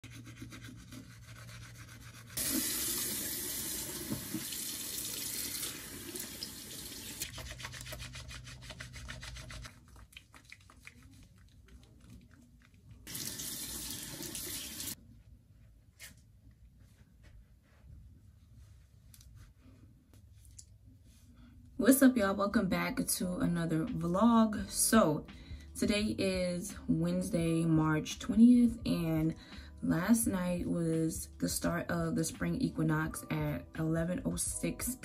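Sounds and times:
tap running: 0:02.4 - 0:04.7
splashing and rubbing wet hands: 0:07.2 - 0:13.5.

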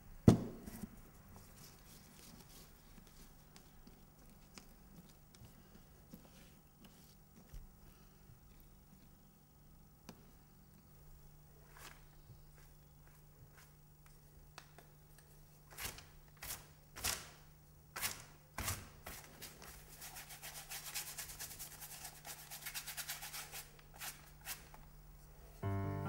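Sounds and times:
paintbrush scrubbing on paper: 0:01.4 - 0:07.2, 0:19.1 - 0:24.7
piano music: 0:25.6 - 0:26.0.

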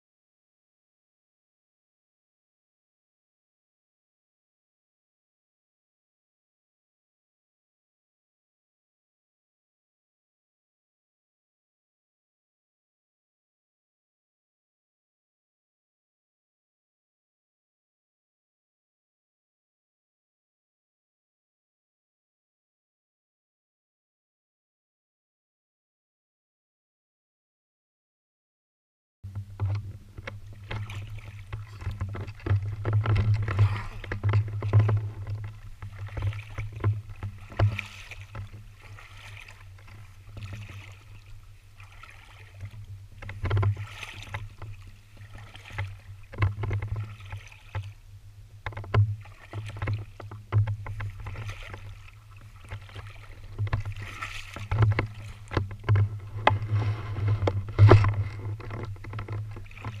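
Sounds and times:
boots wading through water: 0:29.3 - 1:00.0.

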